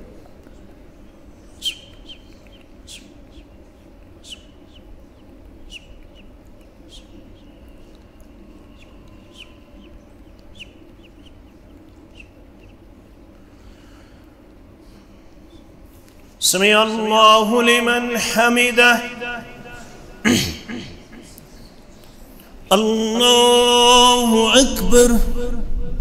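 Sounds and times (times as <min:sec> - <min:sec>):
low room hum: 0:00.0 - 0:26.0
small bird chirping: 0:00.5 - 0:13.4.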